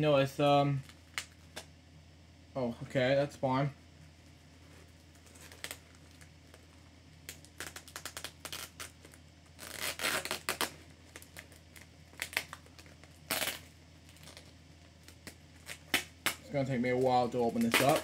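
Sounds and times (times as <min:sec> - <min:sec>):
package scratching and tearing: 0:05.2 - 0:06.6, 0:07.3 - 0:16.4, 0:17.4 - 0:18.0.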